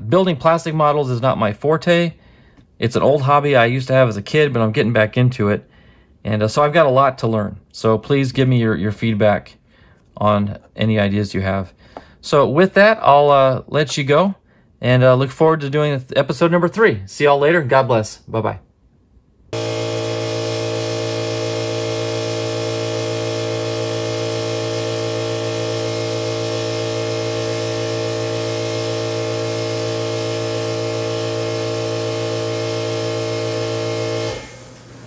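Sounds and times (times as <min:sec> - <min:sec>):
compressor motor humming: 0:19.6 - 0:35.0.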